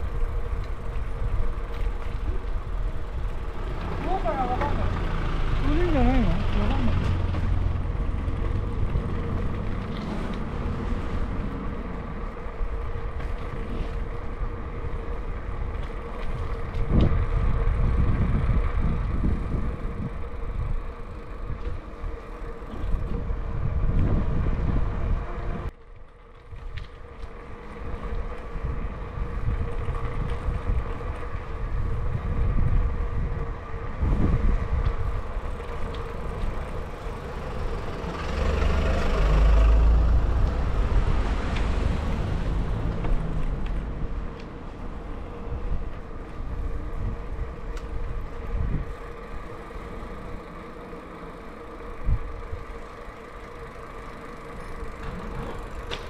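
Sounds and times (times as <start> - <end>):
bicycle riding hum: 0.0 - 56.0
wind buffeting microphone: 5.6 - 25.8, 26.4 - 50.5, 51.6 - 53.1.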